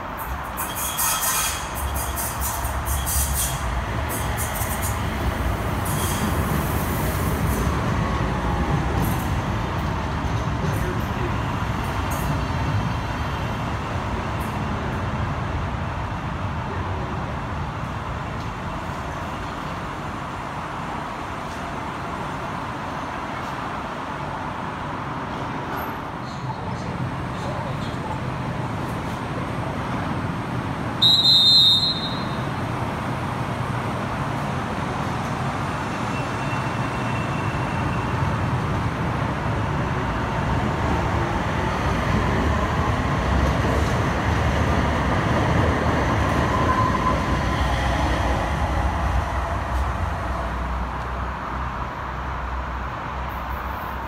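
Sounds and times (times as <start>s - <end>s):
light-rail train pulling away: 0.0s - 54.0s
loud high beep: 31.0s - 32.4s.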